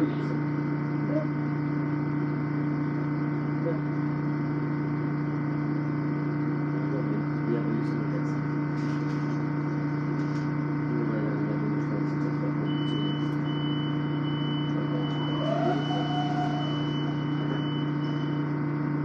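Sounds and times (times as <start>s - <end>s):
thin high-pitched whine: 14.0s - 18.5s
train interior hum: 14.4s - 18.4s.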